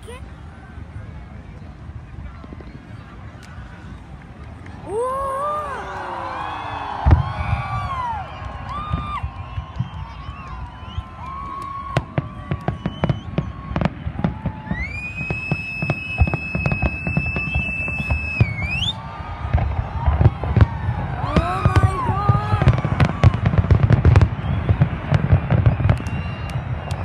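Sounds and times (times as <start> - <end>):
long high whistle: 4.9 - 19.2, 23.9 - 27.0
fireworks bangs and crackles: 6.3 - 27.0.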